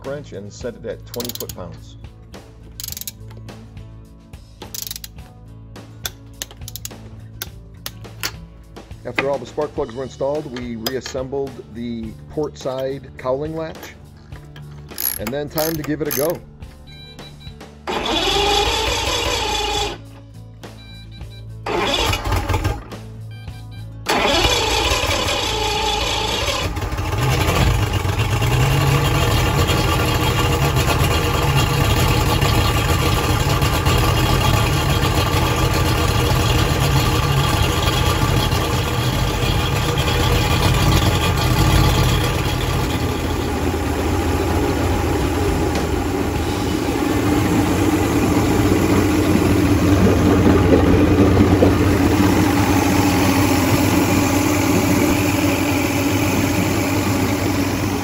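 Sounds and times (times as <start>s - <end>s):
outboard engine starting and running: 14.8s - 20.2s, 20.8s - 23.1s, 24.0s - 58.0s.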